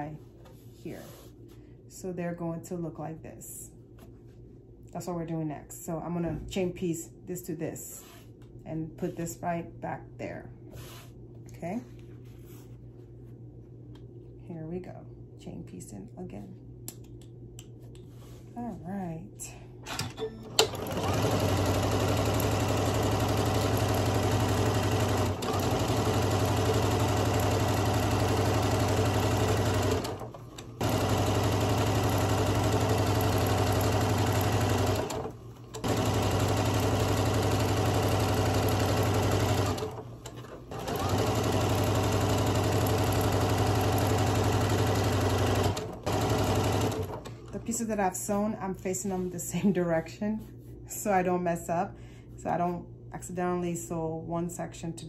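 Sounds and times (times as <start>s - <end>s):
sewing machine running: 20.0s - 47.3s.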